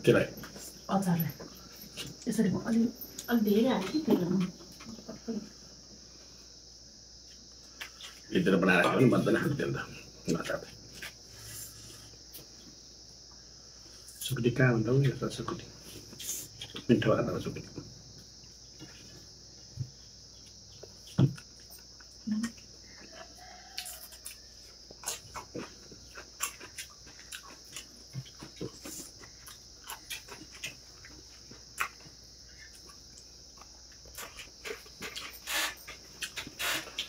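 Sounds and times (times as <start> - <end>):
steady high hiss: 0.0 - 37.0
chewing and lip smacking: 20.4 - 37.0.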